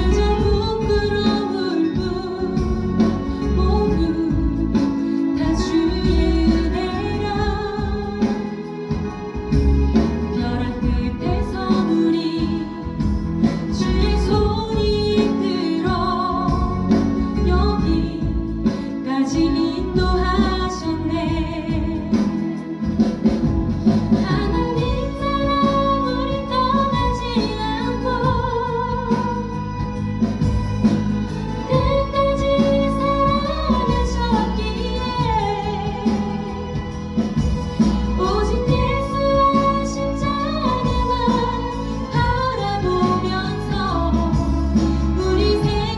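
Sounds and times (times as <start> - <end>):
woman singing worship song: 0.0 - 8.5, 10.3 - 13.1, 24.2 - 29.8, 31.6 - 36.9, 38.1 - 45.9
instrumental accompaniment: 0.0 - 45.9.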